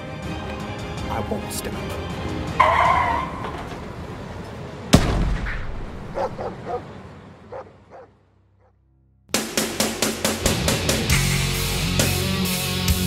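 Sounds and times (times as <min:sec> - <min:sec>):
loud bang ringing out: 0:04.9 - 0:06.2
loud rock music: 0:09.3 - 0:13.0.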